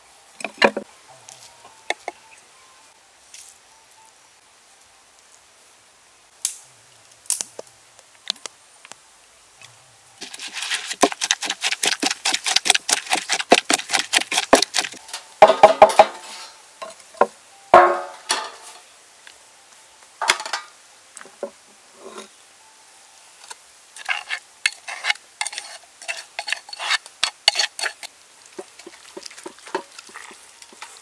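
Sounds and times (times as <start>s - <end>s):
pestle scraping in mortar: 10.2s - 15.0s, 24.0s - 31.0s
pestle pounding in clay mortar: 10.2s - 16.0s.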